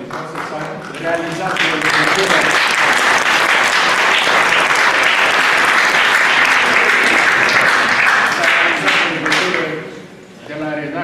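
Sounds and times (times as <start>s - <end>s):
faint man's voice: 0.0s - 3.0s, 6.1s - 11.0s
audience applauding: 0.0s - 9.8s.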